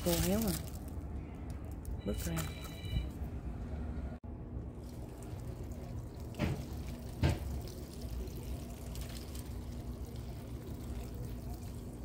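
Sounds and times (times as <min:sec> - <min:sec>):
watering can water pattering: 0:00.0 - 0:00.9, 0:04.8 - 0:12.0.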